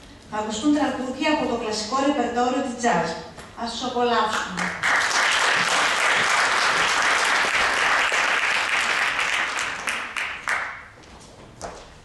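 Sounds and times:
scattered claps: 0:04.4 - 0:10.9
audience applauding: 0:04.6 - 0:10.9.

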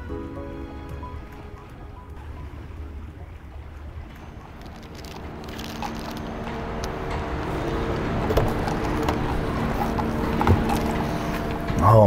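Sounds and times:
engine hum: 0:00.0 - 0:12.0
city street traffic: 0:04.6 - 0:12.0.

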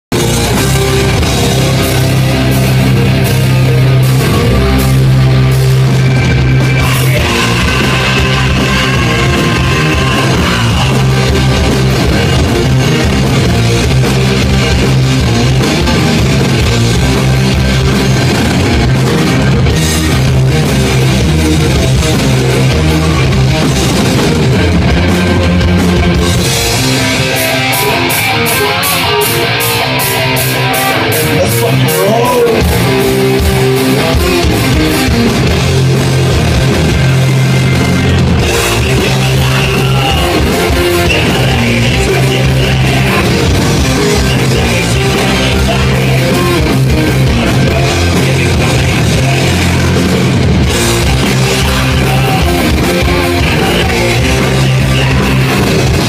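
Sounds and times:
live heavy rock band: 0:00.0 - 0:56.0.

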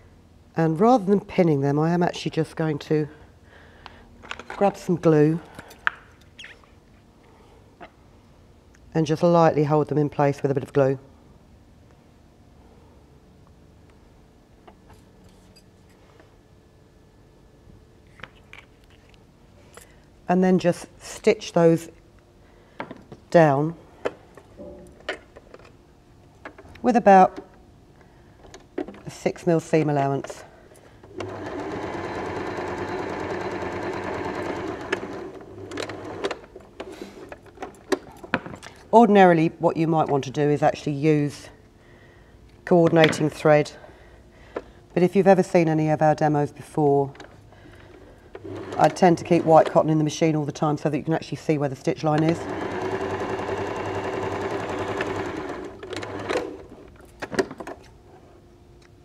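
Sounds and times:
sewing machine stitching: 0:31.1 - 0:36.4, 0:48.4 - 0:49.7, 0:52.2 - 0:56.7.

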